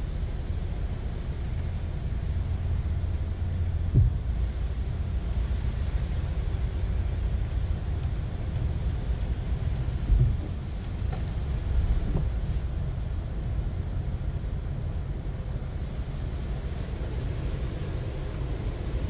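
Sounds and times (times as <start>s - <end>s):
car wash machinery rumbling: 0.0s - 19.0s
short thump: 3.9s - 4.3s.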